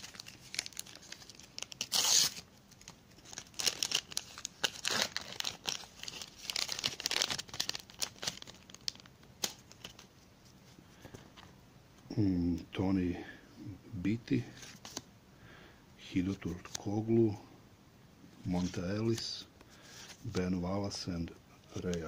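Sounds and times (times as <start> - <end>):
paper pack tearing open: 0.0 - 10.0
wrapper crinkling: 0.0 - 10.1.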